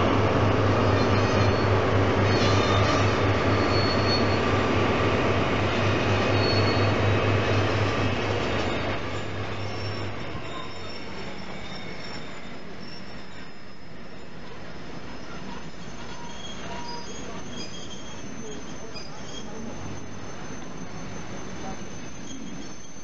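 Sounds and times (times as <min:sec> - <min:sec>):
diesel locomotive engine throb: 0:00.0 - 0:10.4
high-pitched wheel squeal: 0:00.6 - 0:23.0.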